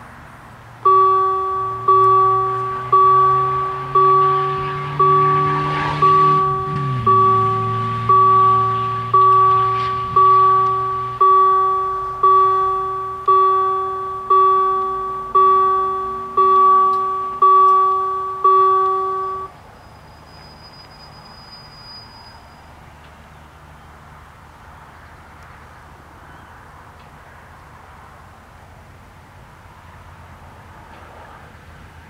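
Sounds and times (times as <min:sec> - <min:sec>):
level-crossing warning bells: 0:00.8 - 0:22.8.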